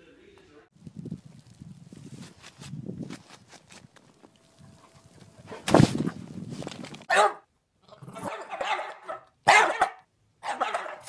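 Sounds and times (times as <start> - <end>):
dog barking and yowling: 7.1 - 7.5, 8.1 - 11.0.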